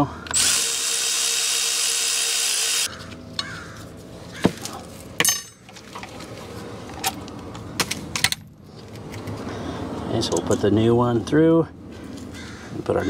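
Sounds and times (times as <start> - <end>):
cordless ratchet running: 0.3 - 2.9.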